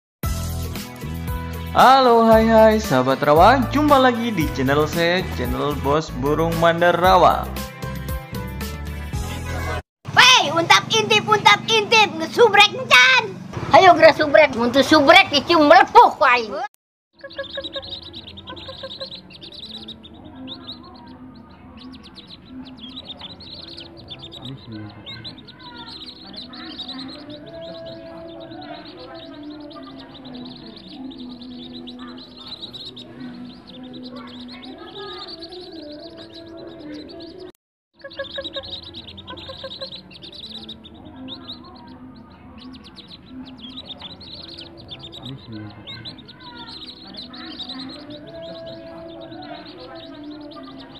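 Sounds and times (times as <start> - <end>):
ducklings peeping: 17.2 - 50.9.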